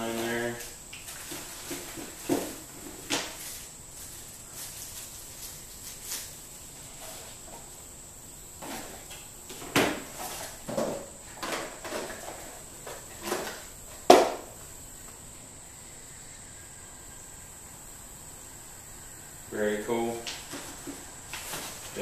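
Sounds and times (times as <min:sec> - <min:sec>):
objects set down on table: 0:08.6 - 0:14.5
packaging rustling: 0:20.3 - 0:22.0.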